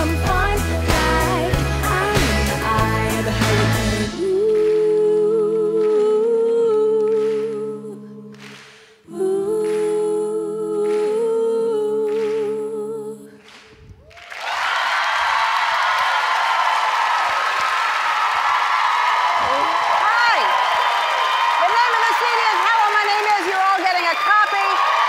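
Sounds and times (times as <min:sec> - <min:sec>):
applause: 0:04.2 - 0:05.2, 0:07.0 - 0:07.6, 0:08.3 - 0:08.9, 0:09.6 - 0:10.0, 0:10.8 - 0:11.3, 0:12.1 - 0:12.6, 0:13.4 - 0:25.0.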